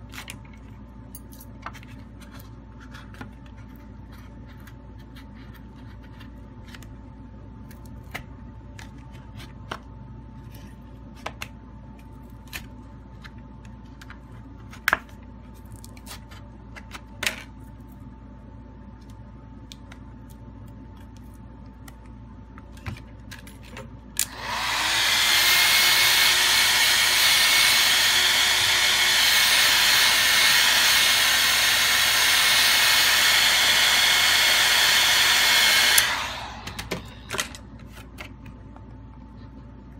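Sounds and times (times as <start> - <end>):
hair dryer blowing: 24.2 - 37.3.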